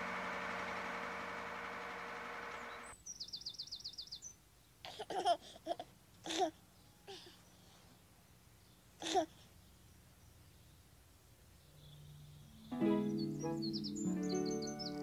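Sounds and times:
fire truck engine running: 0.0s - 2.9s
baby giggling: 4.9s - 7.3s, 9.0s - 9.4s.

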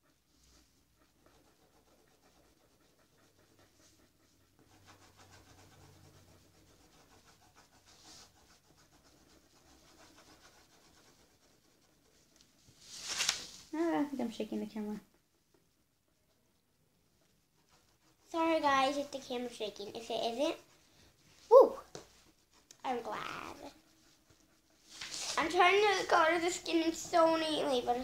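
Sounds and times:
marker scratching on paper: 0.4s - 12.7s, 21.9s - 28.0s.

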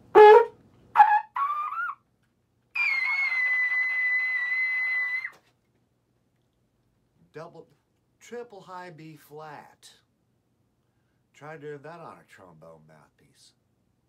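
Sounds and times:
valve trombone high notes: 0.1s - 1.9s.

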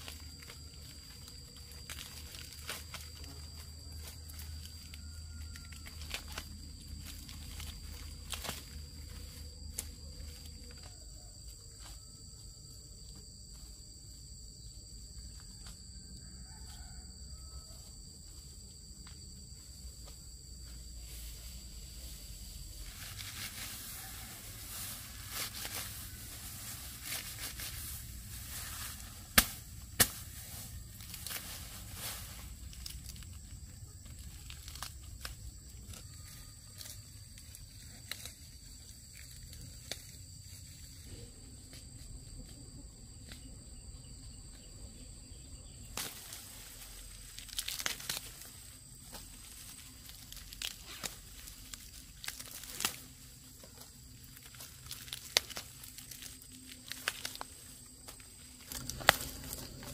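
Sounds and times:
plant stalks rustling and tearing: 0.0s - 11.0s, 22.8s - 40.8s, 45.9s - 59.9s
stalks snapping: 29.3s - 30.2s, 46.0s - 46.4s, 47.4s - 48.5s, 50.1s - 53.1s, 54.5s - 59.7s.

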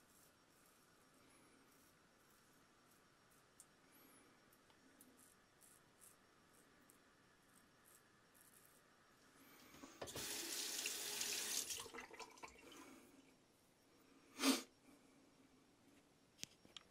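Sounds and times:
tap water running into sink: 10.0s - 12.6s.

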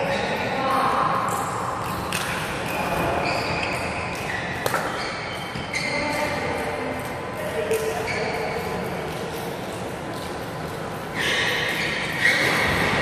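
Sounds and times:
shoes squeaking on court: 1.3s - 13.0s
racket hitting shuttlecock: 3.6s - 5.7s.

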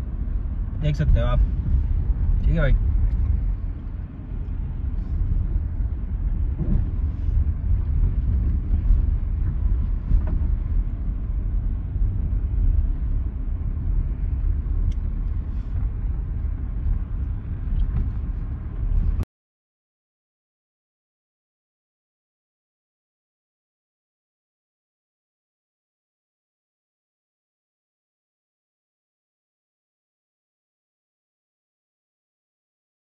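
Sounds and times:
car cabin rumble on rough track: 0.0s - 19.2s.

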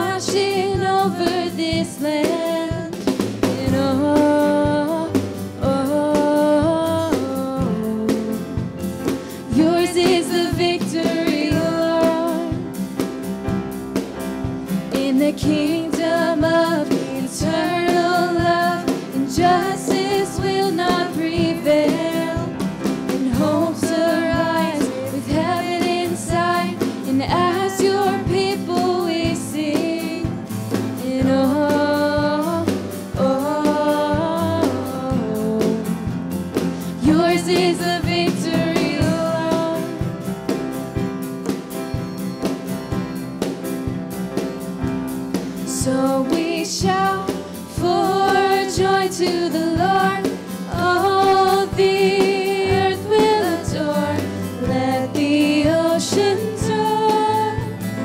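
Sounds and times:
instrumental backing: 0.0s - 58.0s
person singing worship song: 9.3s - 12.7s, 15.0s - 22.5s, 23.1s - 30.4s, 36.9s - 40.1s, 45.7s - 58.0s.

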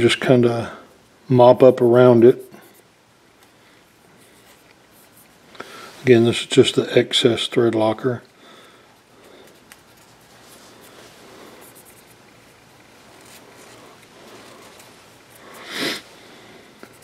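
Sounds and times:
cotton swab rubbing on metal: 4.0s - 6.5s, 9.0s - 16.1s, 16.7s - 17.0s.

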